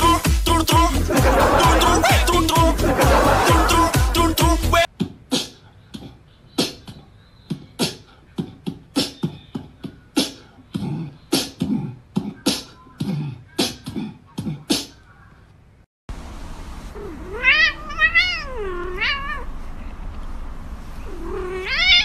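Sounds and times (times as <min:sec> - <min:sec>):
cat hissing: 0:16.9 - 0:19.6, 0:21.0 - 0:22.0.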